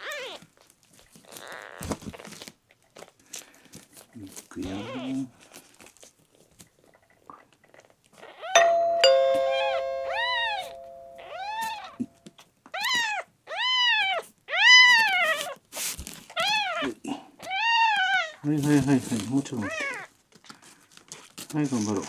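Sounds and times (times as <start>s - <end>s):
two-note ding-dong chime: 8.6s - 11.8s
kitten crying: 12.8s - 15.2s, 16.4s - 18.4s.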